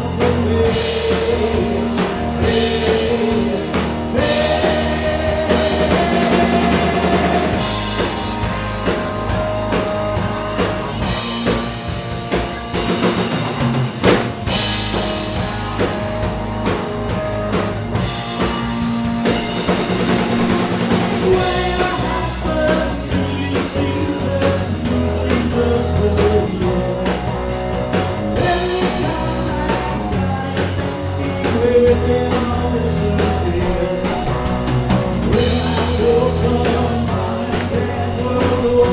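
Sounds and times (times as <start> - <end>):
man singing: 0.0 - 7.8, 21.0 - 38.9
rock band playing: 0.0 - 38.9.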